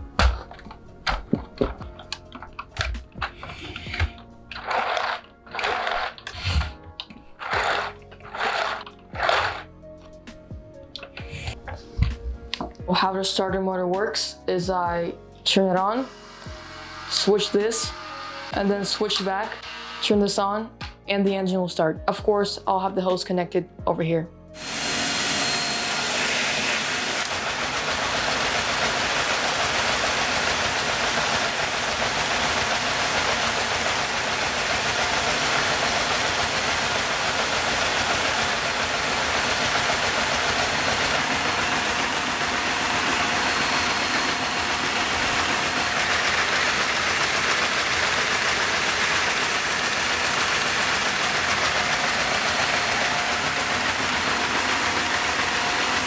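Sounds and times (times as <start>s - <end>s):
vacuum cleaner running: 0.0s - 9.7s, 15.8s - 20.4s, 24.6s - 56.0s
toy engine running slowly: 0.6s - 9.7s, 25.4s - 56.0s.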